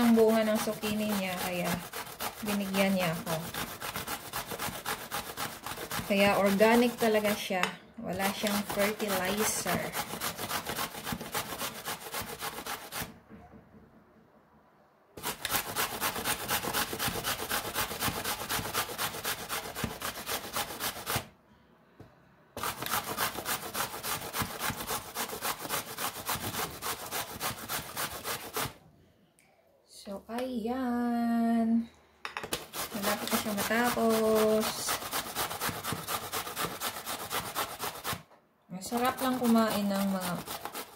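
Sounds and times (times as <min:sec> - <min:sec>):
grating on a metal grater: 0:00.0 - 0:07.5, 0:08.1 - 0:13.1, 0:15.2 - 0:21.2, 0:22.6 - 0:28.8, 0:32.6 - 0:38.2, 0:38.8 - 0:40.9.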